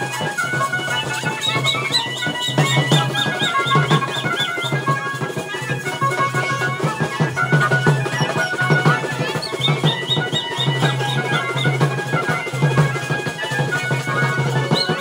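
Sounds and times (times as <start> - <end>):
fast stick drumming: 0.0 - 5.6
lively dance band music: 0.0 - 15.0.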